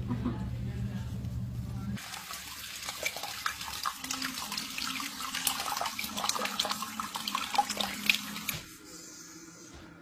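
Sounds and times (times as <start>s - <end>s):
tap water running and splashing: 2.0s - 8.7s.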